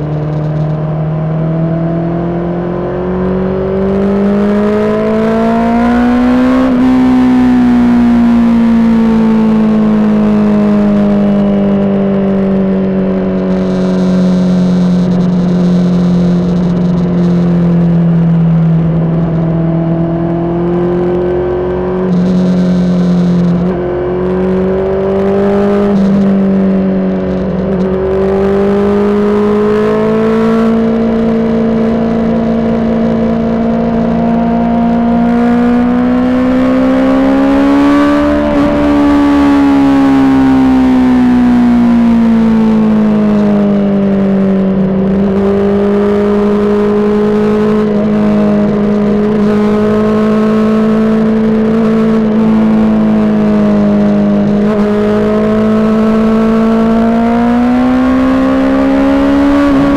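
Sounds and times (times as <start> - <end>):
motorcycle engine cruising: 0.0 - 59.9.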